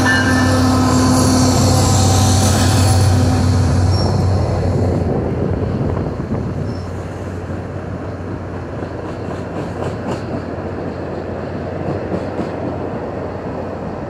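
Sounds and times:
train cars rumbling on rails: 0.0s - 14.0s.

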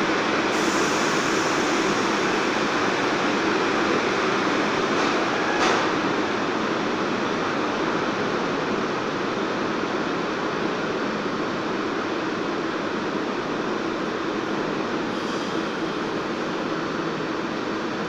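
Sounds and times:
subway station roar: 0.0s - 18.0s.

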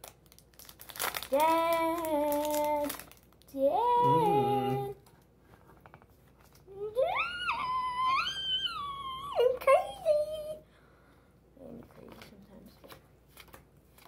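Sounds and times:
child singing long notes: 3.8s - 5.0s
cards being handled: 12.0s - 14.0s.

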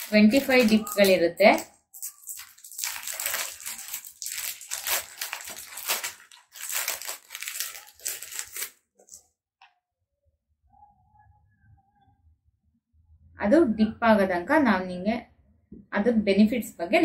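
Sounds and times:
foil sachet crinkling: 0.0s - 9.2s.

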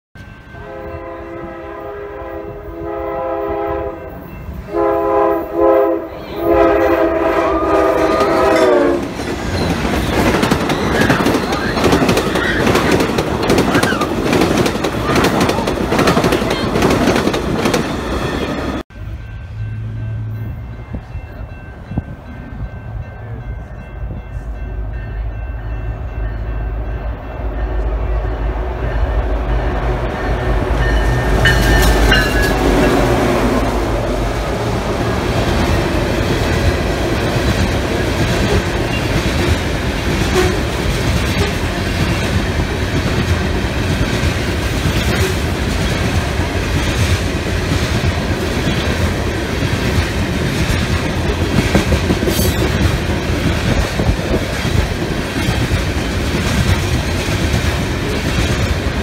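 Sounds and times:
train wheels on rails: 0.2s - 59.0s
locomotive air horn blasts: 0.4s - 9.1s, 40.2s - 41.7s.

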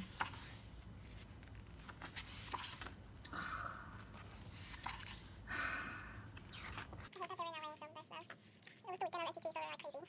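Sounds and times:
pages turning: 0.0s - 3.0s, 4.0s - 5.4s, 6.4s - 7.2s, 8.2s - 9.1s.

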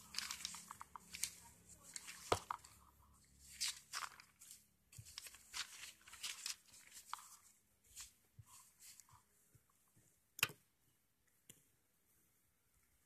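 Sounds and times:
notebook paper rustling and crinkling: 0.0s - 9.6s.

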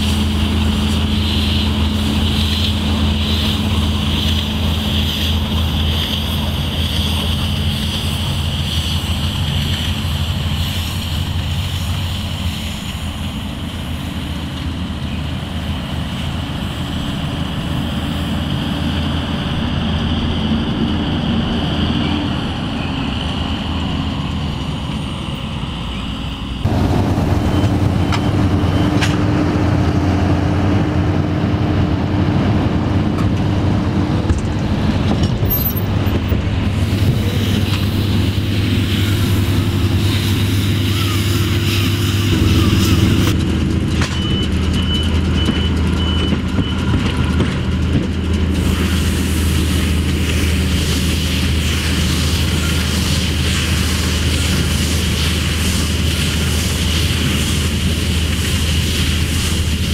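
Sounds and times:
tractor engine drone: 0.0s - 59.9s
machinery clatter: 26.6s - 59.9s.

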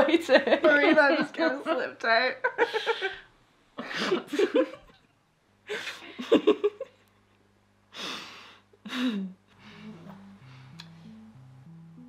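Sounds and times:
women laughing softly: 2.4s - 5.1s
low background music note: 9.6s - 12.0s.

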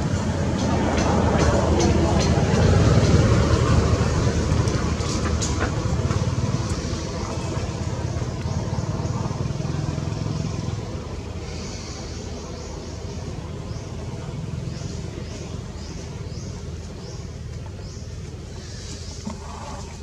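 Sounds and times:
vehicle engine rumble: 0.0s - 20.0s.

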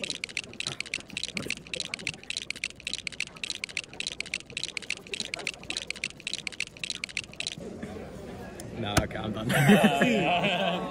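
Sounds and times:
puzzle cube plastic clicks: 0.0s - 7.6s.

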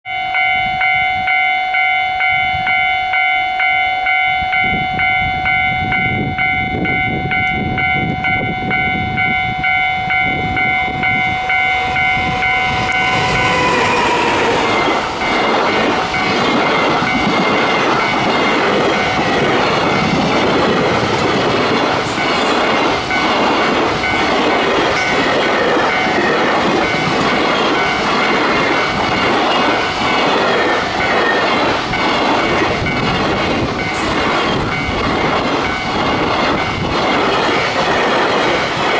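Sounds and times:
level crossing bell dinging: 0.1s - 16.4s
electric locomotive passing: 0.1s - 38.9s
freight train clattering over rail joints: 10.2s - 38.9s.

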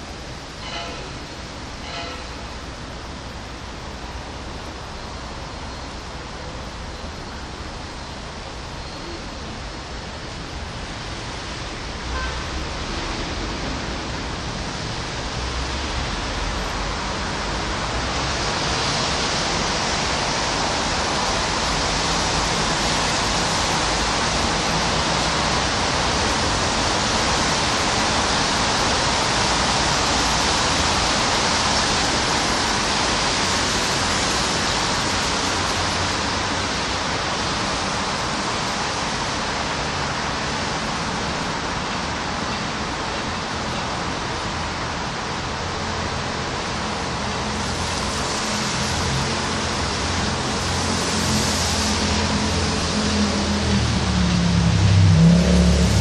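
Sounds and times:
steady rain falling: 0.0s - 56.0s
low rumble: 53.8s - 56.0s.

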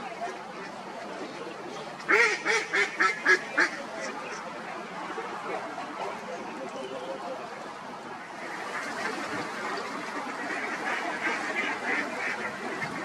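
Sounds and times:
waterfowl calling: 2.0s - 4.4s, 8.4s - 13.0s.

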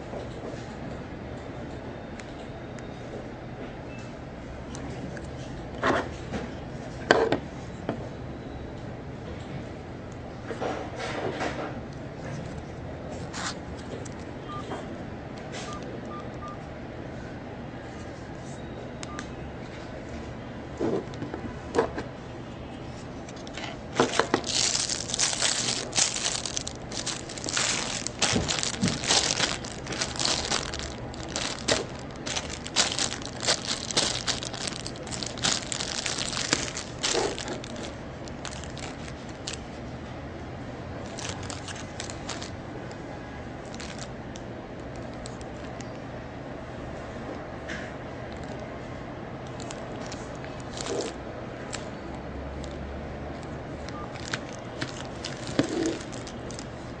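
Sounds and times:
cable and packaging crinkling: 23.3s - 39.7s, 41.0s - 42.6s, 43.6s - 46.0s, 49.5s - 51.9s, 52.6s - 57.0s.

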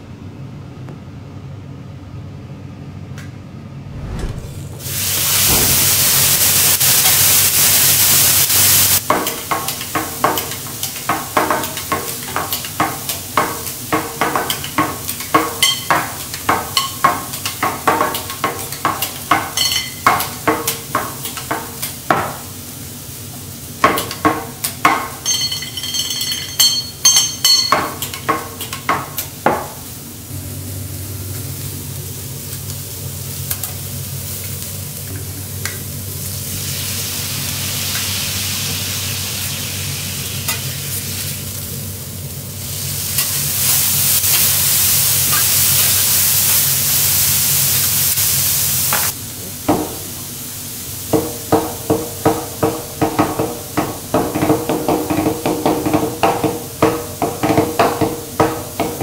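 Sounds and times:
vegetables sizzling on a griddle: 4.8s - 59.0s
high ringing metal taps: 25.2s - 27.9s.

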